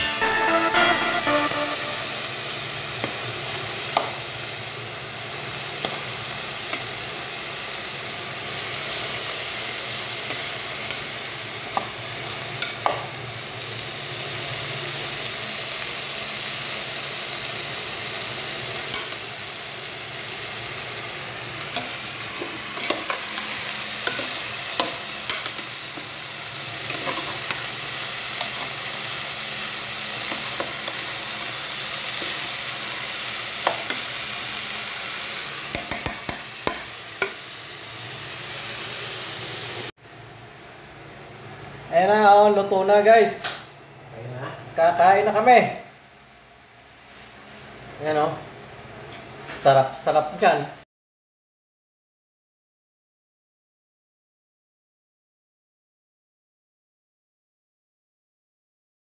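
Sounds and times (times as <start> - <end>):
tripe sizzling in a pot: 0.0 - 39.9.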